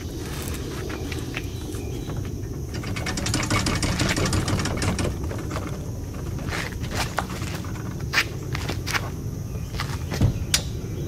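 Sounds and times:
kayak rattling over roller: 2.6 - 8.8.

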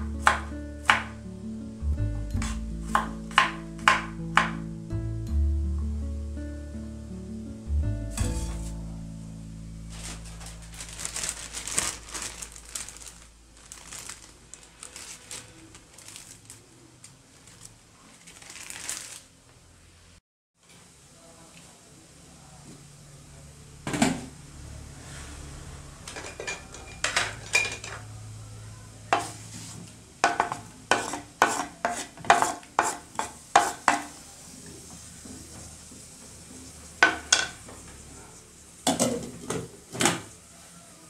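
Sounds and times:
wooden utensil scraping cutting board: 2.4 - 4.6, 8.2 - 8.8, 29.2 - 34.1
low steady hum: 5.1 - 16.2.

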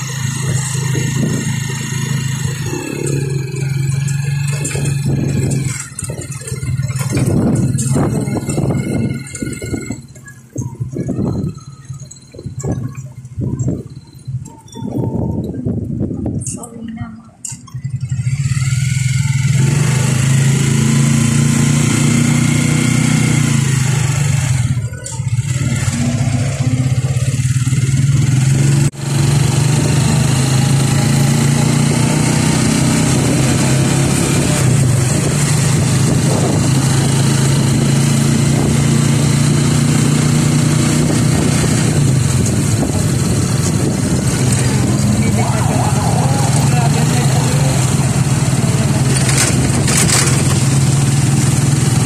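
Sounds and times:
vehicle engine running: 0.0 - 16.8, 17.4 - 52.0
road and wind noise: 0.0 - 52.0.

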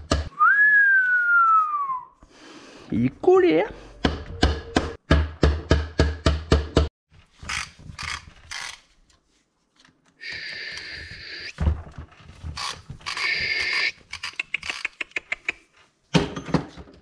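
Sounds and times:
tools scraping and knocking: 11.6 - 17.0
quick clicks: 12.6 - 15.6.

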